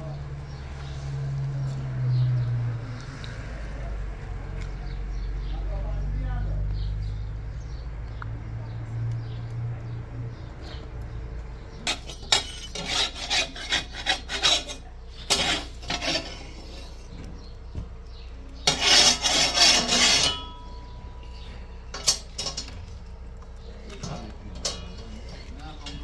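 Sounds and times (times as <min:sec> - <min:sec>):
metal spatula scraping griddle: 0:11.8 - 0:17.5, 0:18.5 - 0:23.1, 0:24.0 - 0:26.0.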